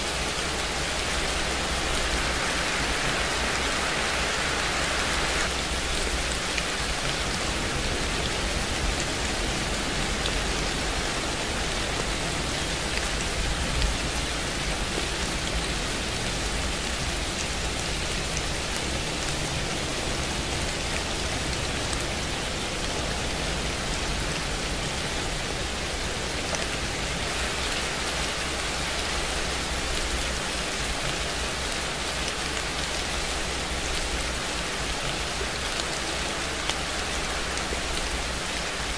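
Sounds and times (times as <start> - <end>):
steady rain: 0.0 - 38.9
raindrop ticks: 26.2 - 38.9.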